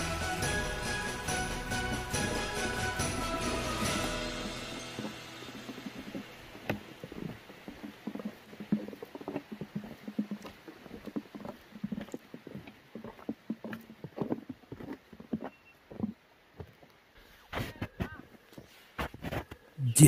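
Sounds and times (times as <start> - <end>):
background music: 0.0 - 6.7
footsteps crunching on snow: 4.1 - 19.5.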